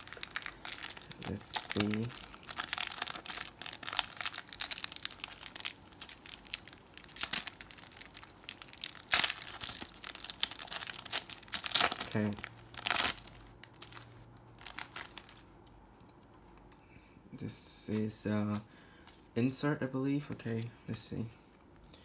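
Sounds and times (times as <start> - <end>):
plastic wrapper tearing and crinkling: 0.0 - 15.5.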